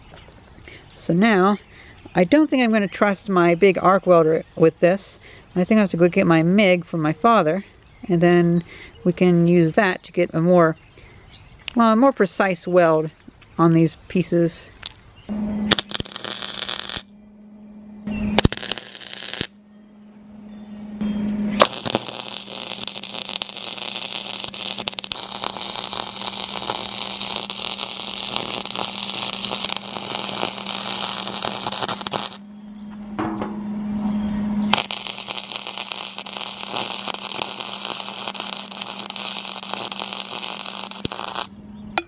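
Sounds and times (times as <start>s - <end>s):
steady low hum: 15.0s - 42.0s
welder arc crackling: 15.3s - 17.1s, 18.4s - 19.6s, 21.5s - 32.4s, 34.7s - 41.5s.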